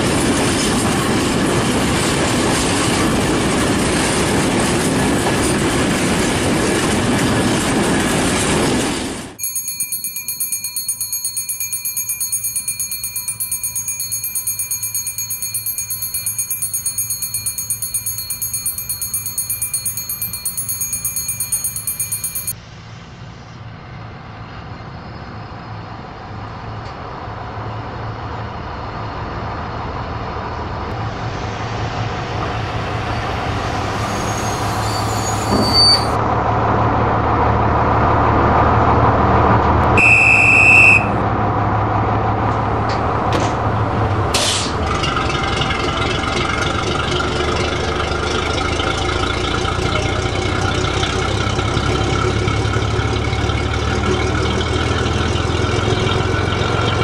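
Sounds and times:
railcar rumbling on track: 0.0s - 57.0s
electric bell ringing: 9.4s - 22.6s
high squeal: 33.1s - 36.2s.

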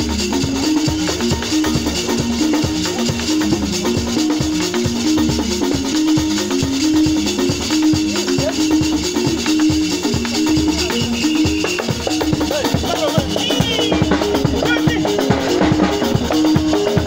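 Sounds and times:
drums keeping steady beat: 0.0s - 17.0s
shaker: 0.0s - 17.0s.

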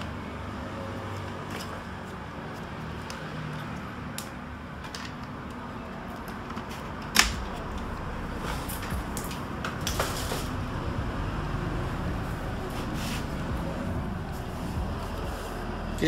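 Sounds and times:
clicks and rustles of cables: 2.6s - 7.9s.

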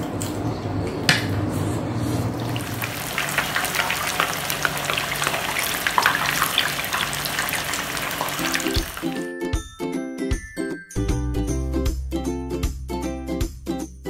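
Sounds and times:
meat sizzling in hot oil: 2.4s - 9.2s
oil crackling and popping: 2.4s - 9.2s.

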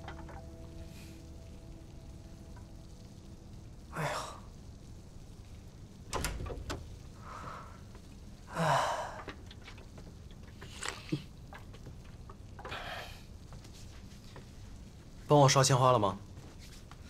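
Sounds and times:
man sighing: 3.9s - 4.5s, 8.5s - 9.3s.

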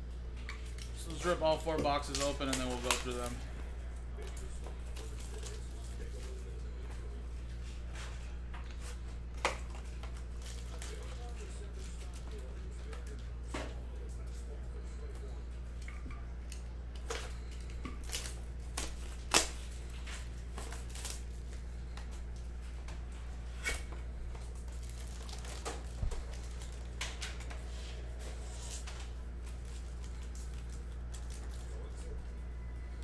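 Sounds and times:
foil packs crinkling: 0.6s - 6.8s, 8.8s - 13.2s, 16.5s - 22.5s, 23.6s - 32.2s.

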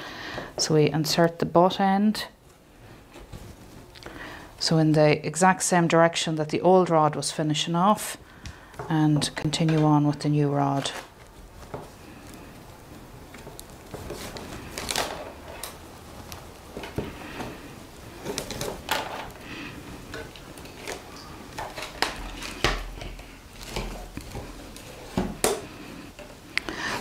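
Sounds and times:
willow rods rustling and scraping: 2.7s - 4.0s, 10.6s - 27.0s.

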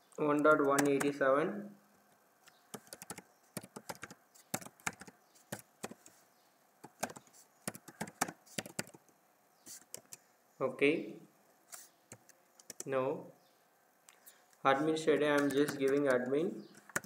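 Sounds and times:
keyboard typing clicks: 0.4s - 1.2s, 2.5s - 6.1s, 6.8s - 9.2s, 9.8s - 10.2s, 12.1s - 12.9s, 15.3s - 17.0s.

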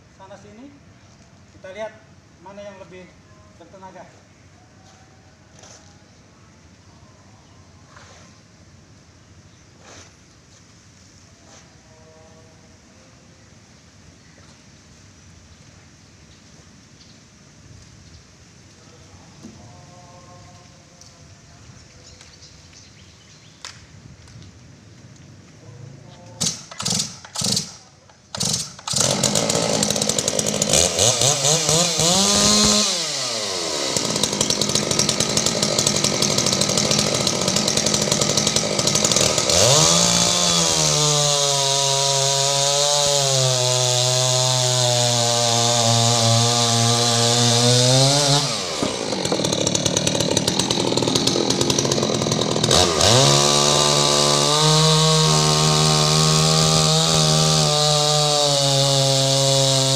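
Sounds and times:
chainsaw cutting log: 26.4s - 59.9s.

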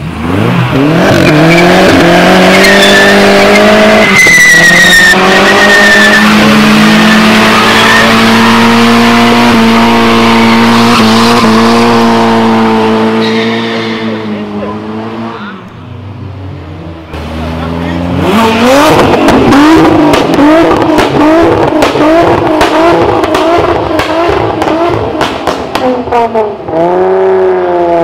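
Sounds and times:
car engine revving: 0.0s - 28.0s
tyres screeching: 0.8s - 14.5s.

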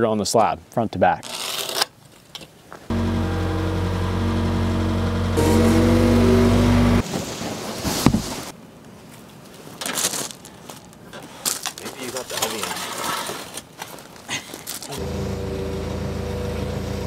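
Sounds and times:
diesel engine running: 2.9s - 7.0s, 15.0s - 17.0s
thump: 7.8s - 8.4s.

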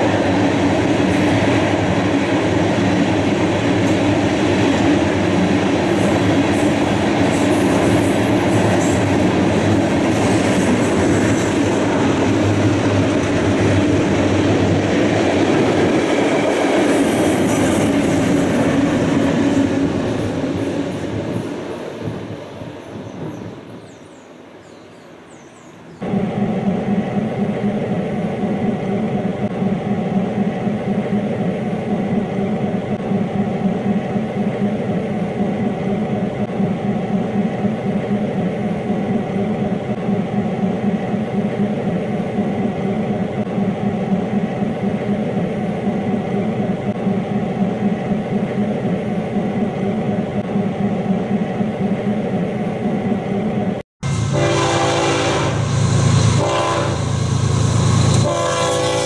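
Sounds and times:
approaching freight train: 0.0s - 59.0s
diesel locomotives droning: 26.0s - 59.0s
train horn: 54.0s - 57.2s, 58.1s - 59.0s.

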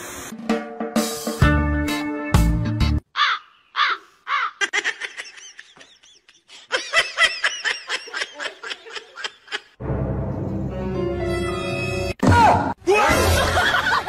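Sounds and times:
high-pitched giggling: 4.2s - 9.8s.

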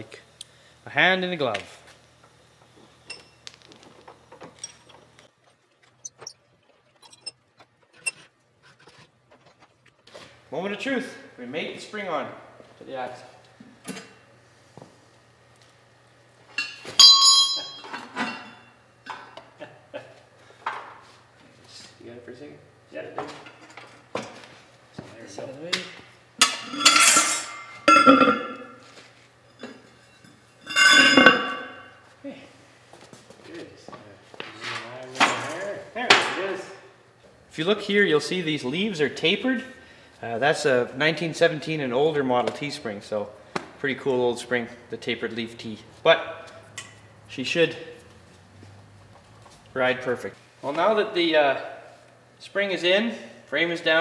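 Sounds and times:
ringing metal clangs: 16.6s - 18.7s, 29.7s - 32.0s.

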